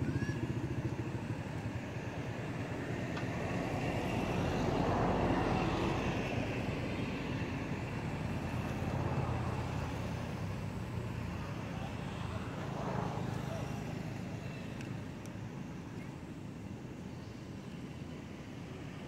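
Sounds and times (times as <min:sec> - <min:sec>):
passing vehicle engine: 0:00.0 - 0:14.7.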